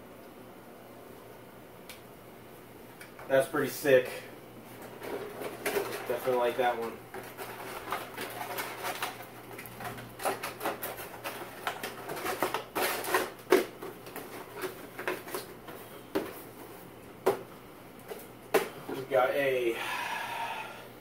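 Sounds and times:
faint steady hum: 0.0 - 21.0
plastic packaging crinkling: 4.8 - 16.5.

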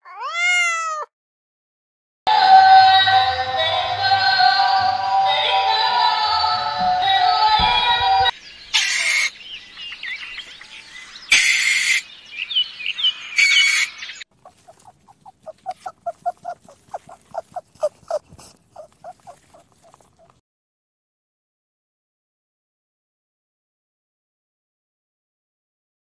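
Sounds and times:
birds chirping: 7.6 - 20.4
rabbits chewing greens: 14.4 - 20.4.

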